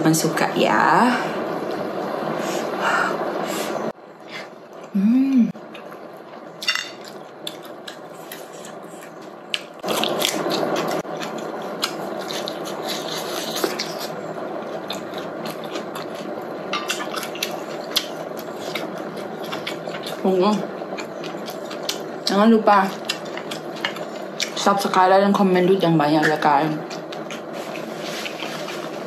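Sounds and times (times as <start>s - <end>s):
person humming: 4.9s - 5.5s
wet chewing: 6.6s - 25.0s, 26.2s - 29.0s.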